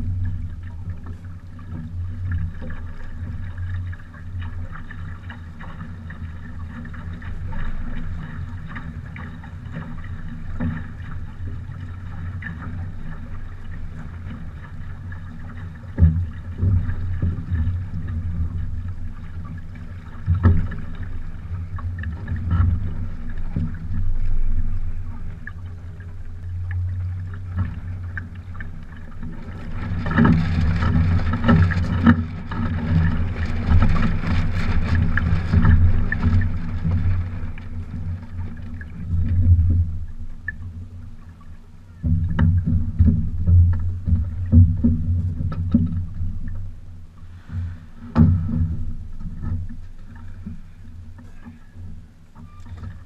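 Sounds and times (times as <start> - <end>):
water lapping against hull: 0.0 - 53.0
knocks on hull: 20.3 - 21.0, 42.0 - 46.4, 47.6 - 50.6.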